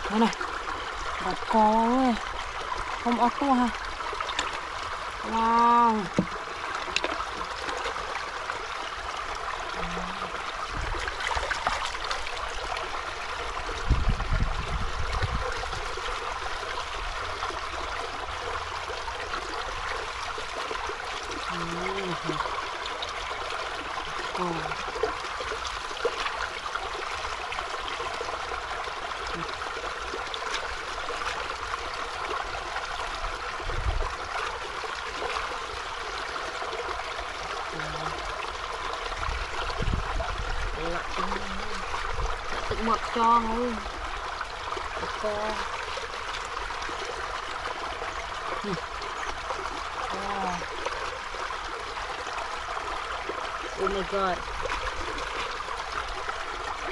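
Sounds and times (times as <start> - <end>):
water trickling: 0.0 - 56.9
murmured vocal sounds: 9.8 - 10.4.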